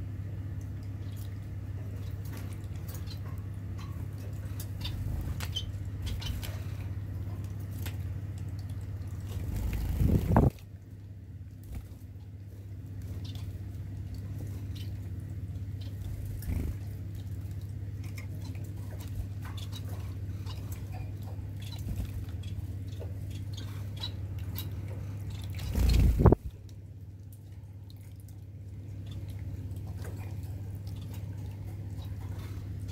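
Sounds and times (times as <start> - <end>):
bird flapping and splashing: 5.0 - 10.7, 16.0 - 22.5, 25.3 - 26.5.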